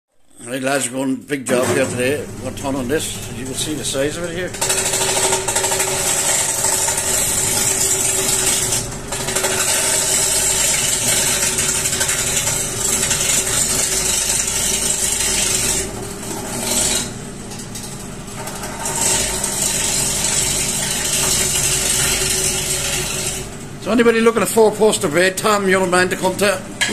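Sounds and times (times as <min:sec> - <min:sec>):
turning tool cutting wood: 0:01.5 - 0:17.2, 0:18.4 - 0:23.9
wood lathe humming: 0:01.6 - 0:17.4, 0:18.4 - 0:24.7.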